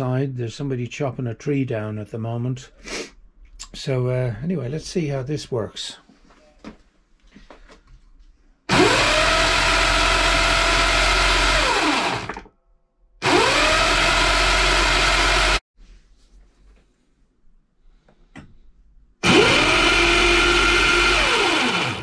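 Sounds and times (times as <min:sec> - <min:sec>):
electric motor whining: 0:08.7 - 0:12.4, 0:13.2 - 0:15.6, 0:19.2 - 0:22.0.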